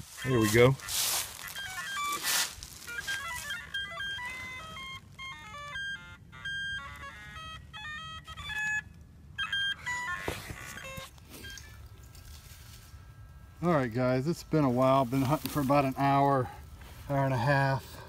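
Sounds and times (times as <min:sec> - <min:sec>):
handling rustle: 0:00.0 - 0:05.3, 0:10.1 - 0:18.0
metal detector beeps: 0:00.0 - 0:18.0.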